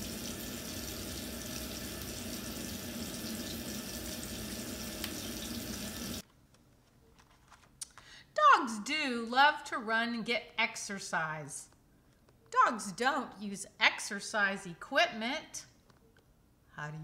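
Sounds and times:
water running into a sink: 0:00.0 - 0:06.2.

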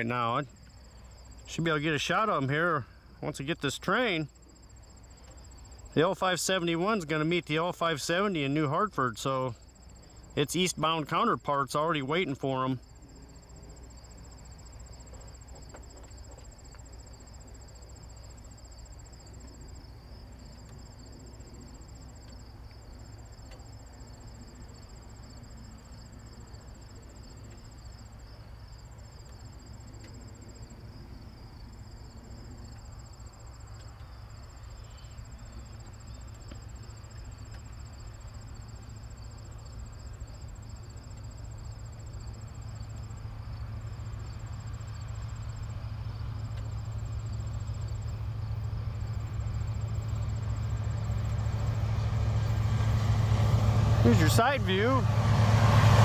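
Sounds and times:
crickets chirping: 0:00.0 - 0:56.0
higher insect trill: 0:00.0 - 0:56.0
diesel freight train rumble: 0:43.8 - 0:56.0.

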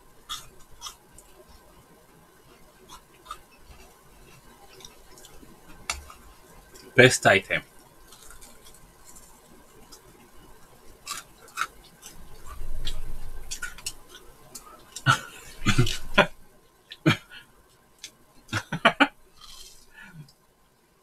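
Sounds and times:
crunching and chewing food: 0:00.0 - 0:07.0, 0:07.6 - 0:16.1, 0:19.3 - 0:20.4.

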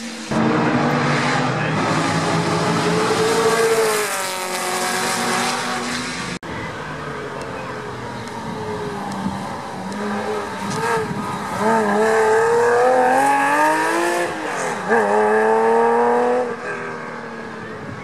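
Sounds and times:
car engine accelerating: 0:00.0 - 0:06.4.

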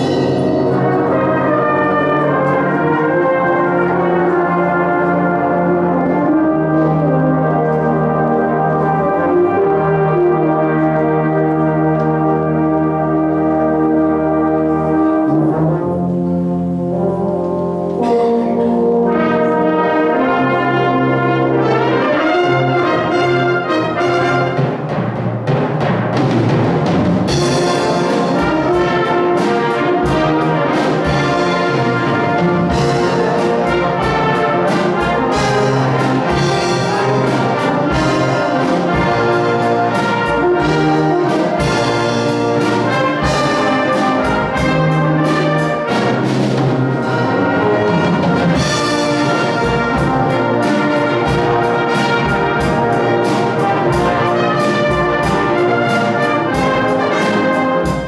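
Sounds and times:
drum set beat: 0:00.0 - 0:03.9, 0:20.3 - 0:58.0
brass band playing: 0:00.0 - 0:58.0.

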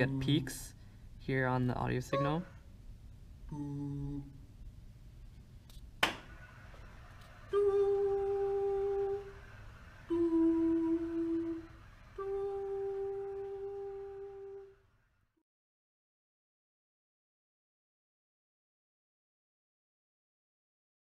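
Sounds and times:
man humming: 0:03.5 - 0:04.5, 0:07.5 - 0:09.4, 0:10.1 - 0:14.7
hand clap: 0:06.0 - 0:06.4.

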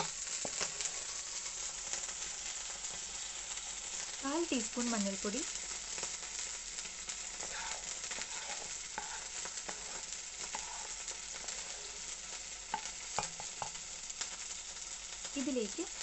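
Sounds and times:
food sizzling in oil: 0:00.0 - 0:16.0
wooden spatula scraping: 0:07.3 - 0:13.8.

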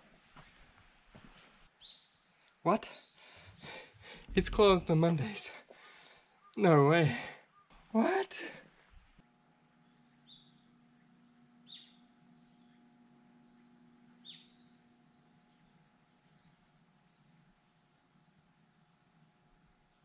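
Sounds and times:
high-pitched insect drone: 0:09.2 - 0:20.0.

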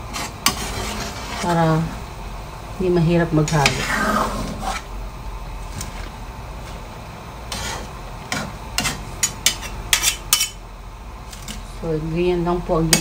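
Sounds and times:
spatula and tongs scraping wok: 0:00.0 - 0:02.1, 0:03.3 - 0:04.9, 0:07.4 - 0:10.6, 0:12.7 - 0:13.0.

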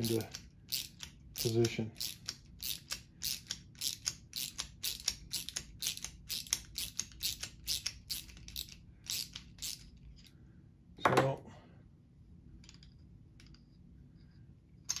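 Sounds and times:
socket ratchet clicking: 0:00.0 - 0:09.9.

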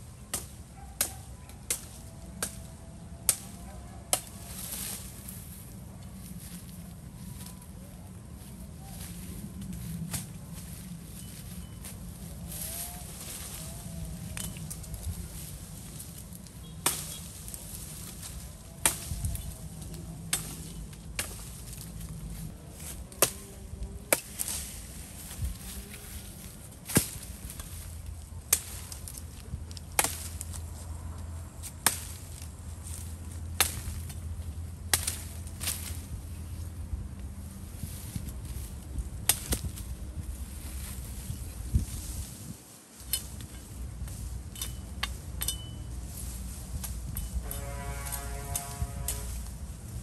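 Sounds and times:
blade chopping firewood: 0:24.0 - 0:24.6.

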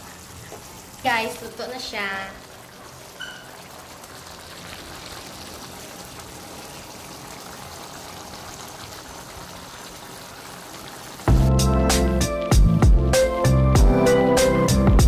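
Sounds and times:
stew simmering with bubbling hiss: 0:00.0 - 0:11.4.

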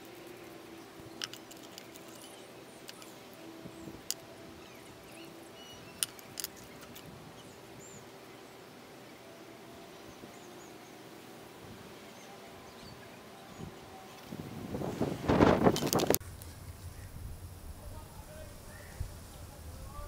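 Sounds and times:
steady low hum: 0:00.0 - 0:20.0
light clicks: 0:06.0 - 0:07.1
faint bird chirps: 0:18.6 - 0:19.0.

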